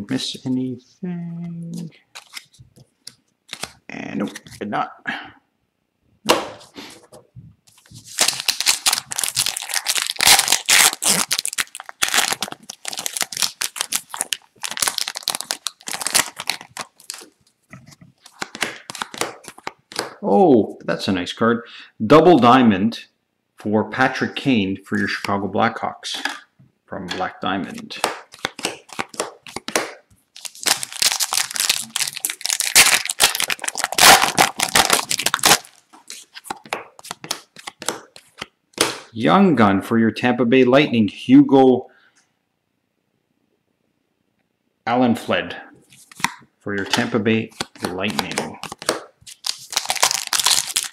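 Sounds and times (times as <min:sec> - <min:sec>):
foil wrapper crinkling and tearing: 0:08.0 - 0:17.4, 0:30.3 - 0:38.2, 0:47.6 - 0:50.9.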